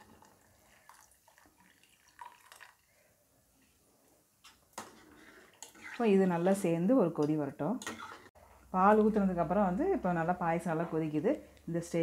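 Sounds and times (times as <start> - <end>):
milk pouring and dripping: 0.0 - 3.1.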